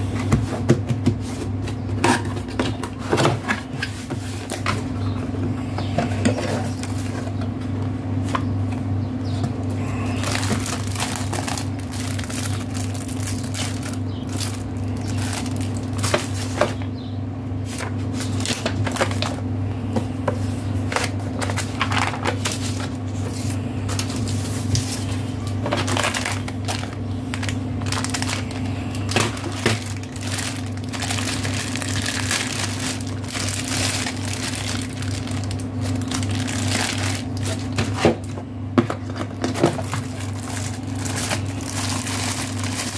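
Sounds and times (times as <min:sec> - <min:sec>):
steady low hum: 0:00.0 - 0:42.9
paper and plastic bag rustling: 0:06.0 - 0:07.4, 0:09.8 - 0:16.8, 0:17.6 - 0:19.4, 0:20.3 - 0:42.9.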